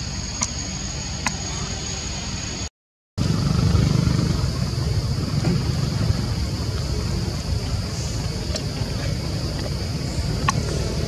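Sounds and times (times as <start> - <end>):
wind rumbling on microphone: 3.2 - 11.0.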